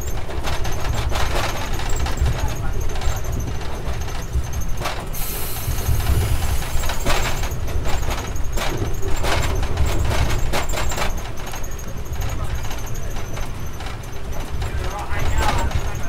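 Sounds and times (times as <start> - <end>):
train coach rumbling: 0.0 - 16.0
wheels clicking and rattling: 0.0 - 16.0
brief hiss: 5.2 - 7.0.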